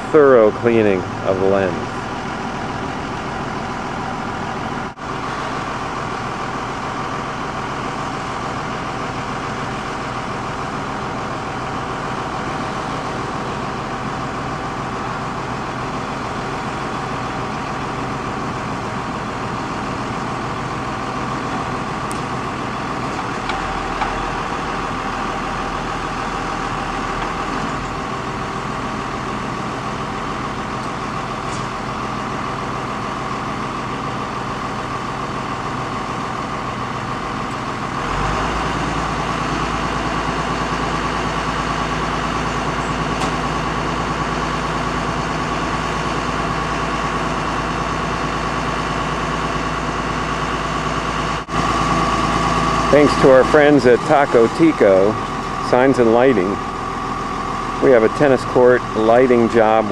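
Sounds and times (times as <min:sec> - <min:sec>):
deep hum: 0:00.0 - 0:08.5
truck engine idling: 0:00.0 - 0:59.9.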